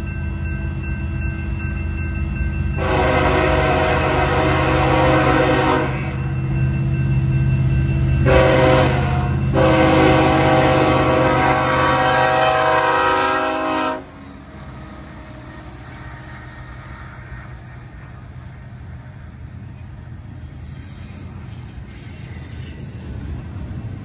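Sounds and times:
train rumble: 0:00.0 - 0:24.0
locomotive air horn blasts: 0:02.8 - 0:06.2, 0:08.2 - 0:14.2.

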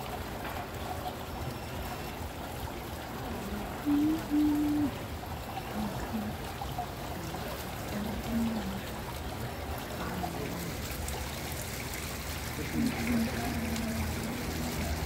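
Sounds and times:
fountain water trickling and splashing: 0:00.0 - 0:15.0
faint voices: 0:03.0 - 0:15.0.

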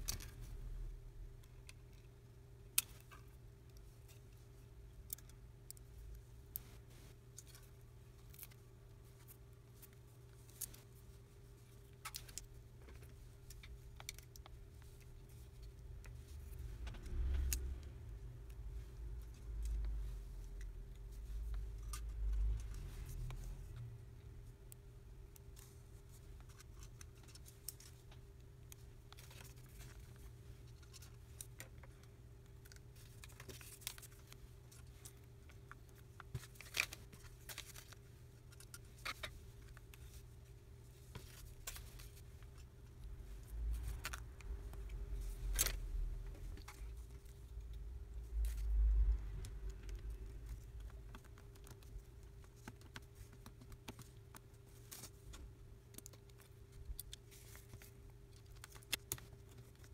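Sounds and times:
faint steady hum: 0:00.0 - 0:59.9
small clicks and taps of handling: 0:01.4 - 0:17.7, 0:48.4 - 0:59.9
low rumbling handling noise: 0:15.6 - 0:24.1.

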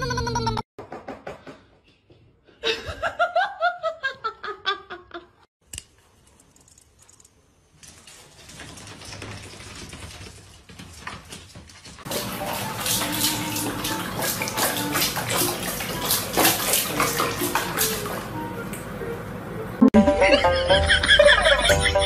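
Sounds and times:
person laughing: 0:02.6 - 0:05.4, 0:19.9 - 0:22.0.

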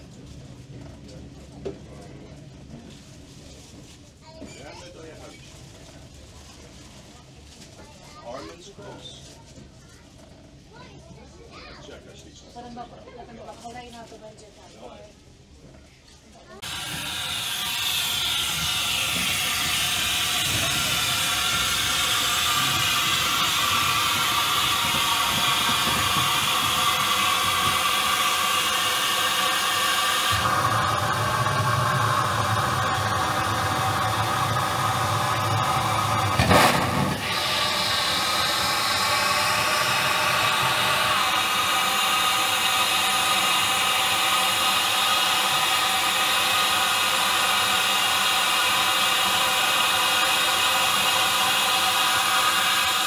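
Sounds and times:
steam locomotive hissing: 0:16.6 - 0:53.0.

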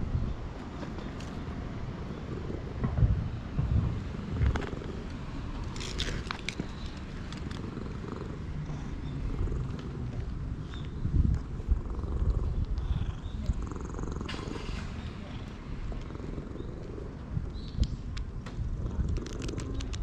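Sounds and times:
cat purring: 0:02.1 - 0:02.8, 0:04.1 - 0:05.2, 0:05.8 - 0:10.2, 0:11.6 - 0:17.7, 0:18.7 - 0:20.0
crisp clicks: 0:04.4 - 0:07.8, 0:18.9 - 0:20.0.

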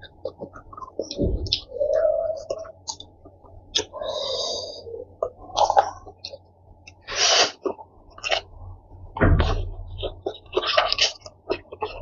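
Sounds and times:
person chewing: 0:00.0 - 0:08.6, 0:10.0 - 0:12.0
person slurping noodles: 0:07.0 - 0:08.4.

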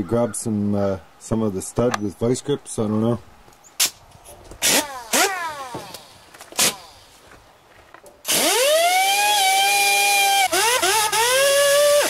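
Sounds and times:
pneumatic tool whining: 0:04.6 - 0:07.1, 0:08.2 - 0:12.0.

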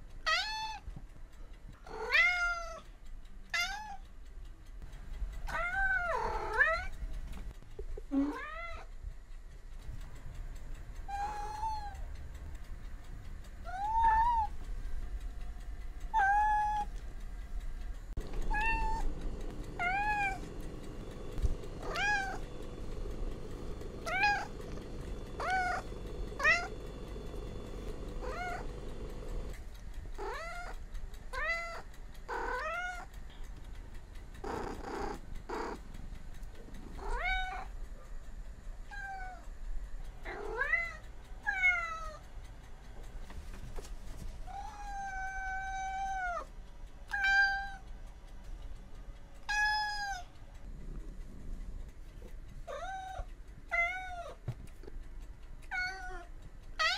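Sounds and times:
cats meowing: 0:00.3 - 0:00.9, 0:01.8 - 0:02.8, 0:03.5 - 0:04.0, 0:05.5 - 0:07.0, 0:08.2 - 0:08.9, 0:11.1 - 0:12.0, 0:13.7 - 0:14.6, 0:16.1 - 0:17.0, 0:18.2 - 0:19.1, 0:19.8 - 0:20.7, 0:21.3 - 0:23.1, 0:23.7 - 0:26.9, 0:28.2 - 0:29.5, 0:30.2 - 0:33.1, 0:36.9 - 0:37.7, 0:40.2 - 0:42.2, 0:44.5 - 0:46.5, 0:49.5 - 0:50.3, 0:52.6 - 0:54.4, 0:55.7 - 0:56.9
steady hum: 0:09.0 - 0:53.7.

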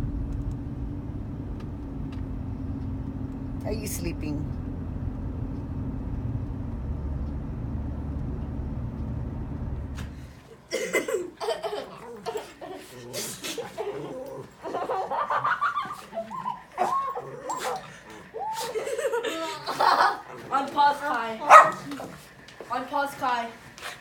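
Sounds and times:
car interior rumble: 0:00.0 - 0:10.3
children's voices and laughter: 0:10.7 - 0:20.5.

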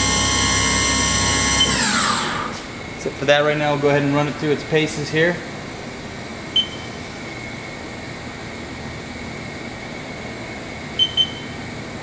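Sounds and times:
machine spindle hum and whine: 0:00.0 - 0:12.0
short high beeps: 0:06.6 - 0:07.0, 0:11.0 - 0:11.5.

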